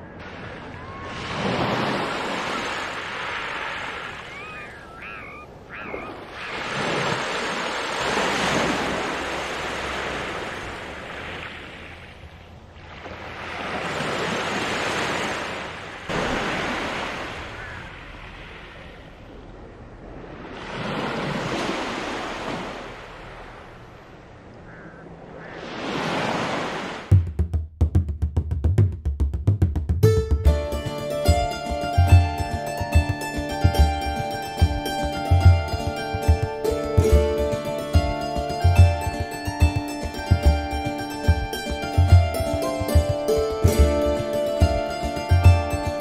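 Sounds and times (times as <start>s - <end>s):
waves washing onto pebble beach: 6.5s - 11.7s.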